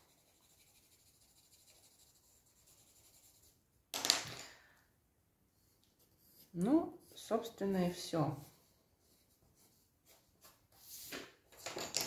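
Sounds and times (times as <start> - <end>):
pencil scratching on paper: 0.0 - 3.6.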